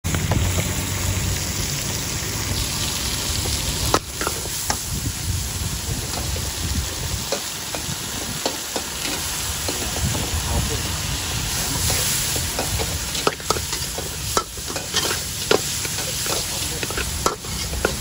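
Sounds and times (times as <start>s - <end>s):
shrimp sizzling in a wok: 0.1s - 18.0s
metal spatula scraping and clinking: 11.8s - 18.0s.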